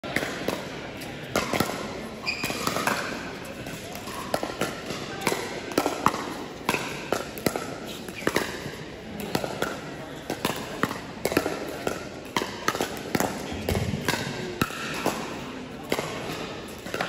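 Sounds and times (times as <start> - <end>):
paddles hitting plastic ball: 1.3 - 1.8, 3.9 - 15.3, 15.9 - 17.0.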